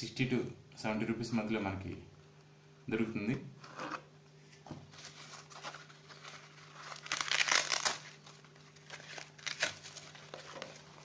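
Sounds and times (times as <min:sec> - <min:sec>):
packaging rustling and crinkling: 0:04.9 - 0:11.0.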